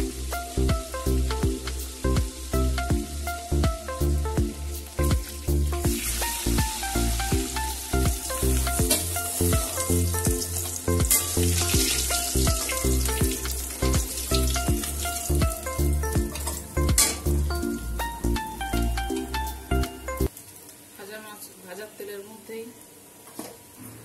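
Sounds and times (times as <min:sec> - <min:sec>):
fish sizzling in hot oil: 0:00.0 - 0:18.1, 0:18.8 - 0:23.8
rhythmic background music: 0:00.0 - 0:20.3
metal spatula in pan: 0:08.3 - 0:12.8, 0:16.3 - 0:17.4.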